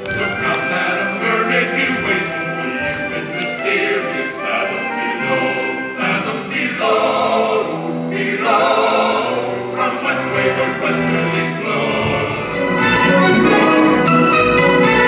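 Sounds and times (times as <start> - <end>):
choir singing long notes: 0.0 - 15.0.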